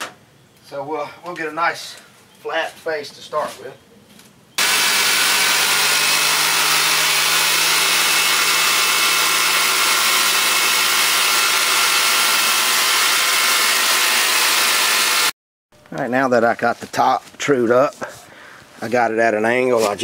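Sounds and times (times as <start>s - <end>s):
saw blade cutting wood: 4.6s - 15.3s
sawmill engine running: 4.6s - 15.3s.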